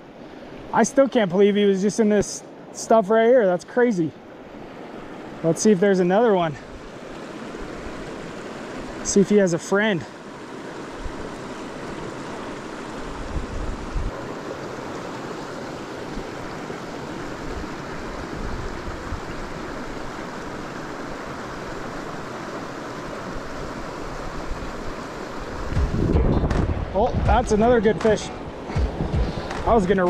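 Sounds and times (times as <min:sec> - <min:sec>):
river water rushing: 0:00.0 - 0:30.0
low thumps: 0:25.7 - 0:29.9.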